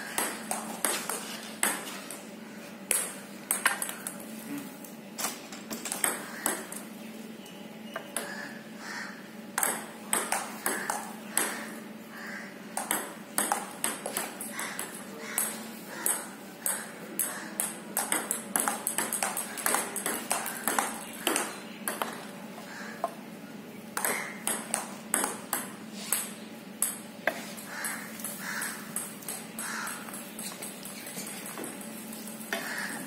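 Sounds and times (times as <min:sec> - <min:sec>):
ping-pong ball clicking: 0:05.9 - 0:06.8, 0:09.6 - 0:11.6, 0:12.8 - 0:22.3.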